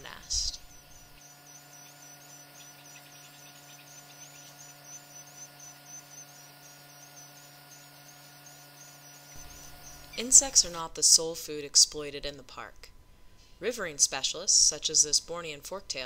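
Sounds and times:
electrical hum: 0:00.0 - 0:16.0
rapid high-pitched ticks: 0:00.7 - 0:10.5.

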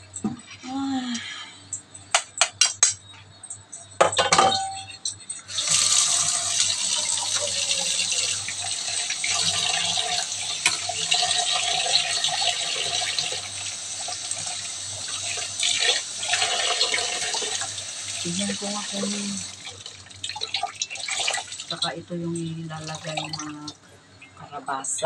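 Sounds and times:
kitchen tap running: 0:05.4 - 0:23.8.

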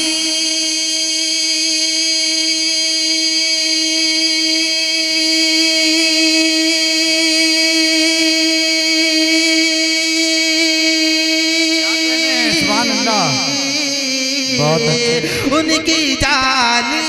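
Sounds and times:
man singing long note: 0:08.0 - 0:17.0.

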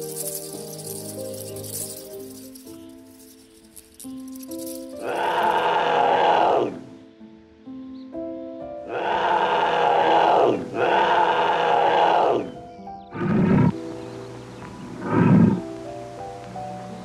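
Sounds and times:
background music: 0:00.0 - 0:17.0
big cat calls: 0:05.0 - 0:06.8, 0:08.9 - 0:12.6, 0:15.0 - 0:15.6.

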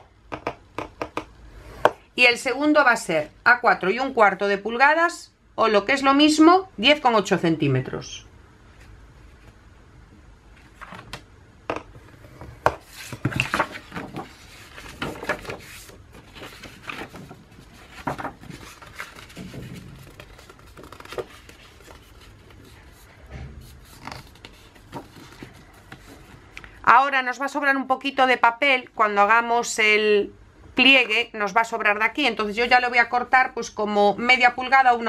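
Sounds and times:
paper rustling: 0:12.0 - 0:26.5.

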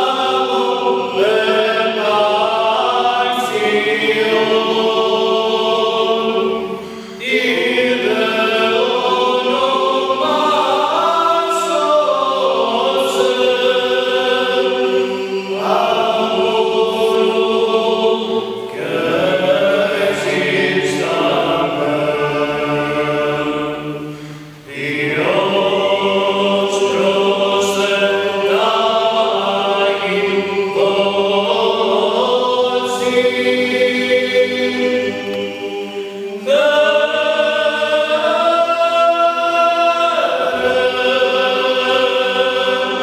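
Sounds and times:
male choir chanting a cappella: 0:00.0 - 0:43.0.

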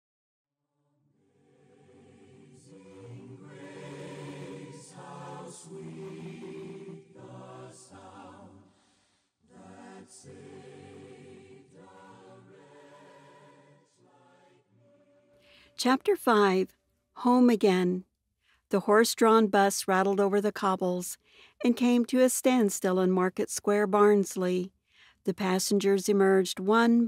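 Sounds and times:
choir singing sustained chords: 0:00.8 - 0:15.6.

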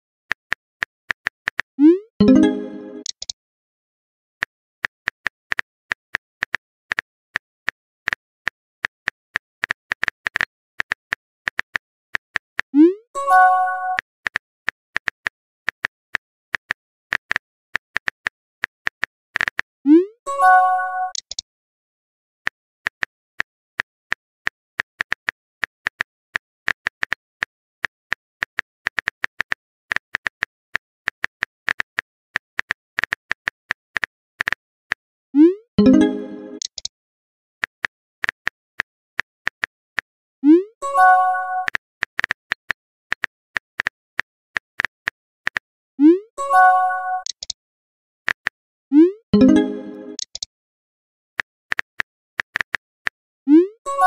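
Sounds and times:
keyboard typing clicks: 0:01.5 - 0:03.4, 0:21.0 - 0:21.4, 0:35.4 - 0:36.9, 0:46.5 - 0:47.6, 0:49.0 - 0:50.5.

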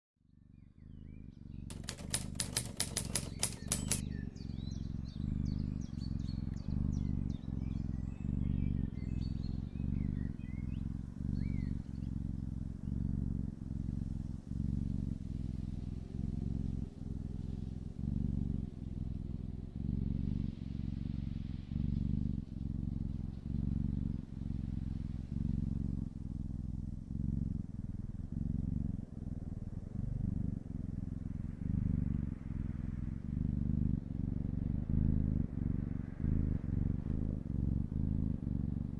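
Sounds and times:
kitten purring: 0:01.4 - 0:38.9
faint bird chirps: 0:04.0 - 0:12.2.

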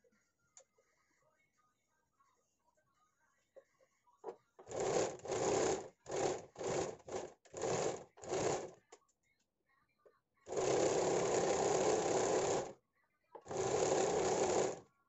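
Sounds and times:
sewing machine stitching: 0:04.6 - 0:08.8, 0:10.5 - 0:12.8, 0:13.4 - 0:14.9.

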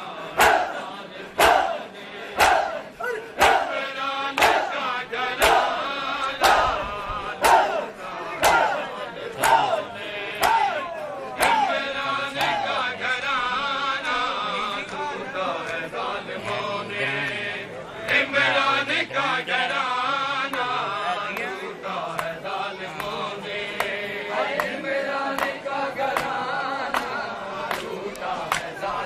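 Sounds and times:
crowd of men chanting: 0:00.0 - 0:29.0
hands slapping bare chests: 0:04.4 - 0:04.8, 0:05.4 - 0:05.8, 0:08.4 - 0:08.8, 0:09.4 - 0:09.7, 0:10.4 - 0:10.8.

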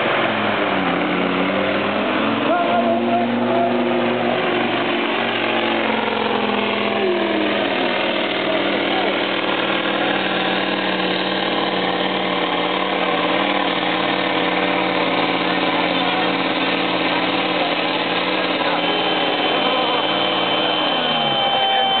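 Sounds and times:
diesel truck engine under load: 0:00.0 - 0:22.0
thin high tone: 0:18.0 - 0:22.0.

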